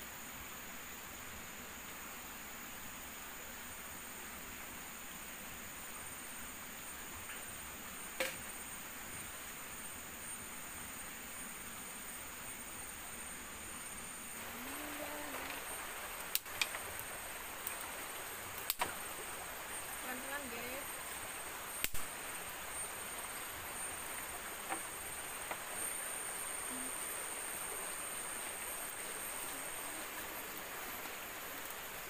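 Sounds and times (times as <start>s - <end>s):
forest insects droning: 0.0s - 32.0s
soft hiss: 0.0s - 32.0s.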